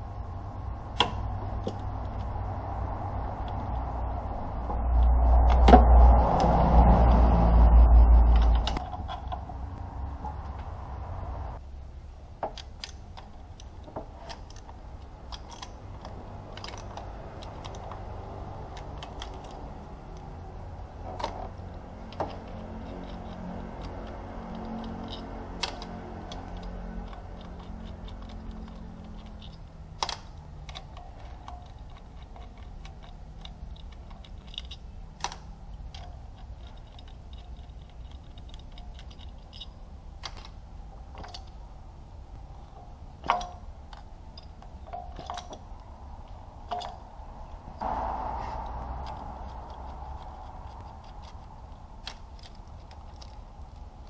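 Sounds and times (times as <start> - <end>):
steady low hum: 0.0 - 54.0
hand tools clicking and knocking: 8.3 - 9.6, 12.4 - 41.7, 42.6 - 47.8, 48.6 - 54.0.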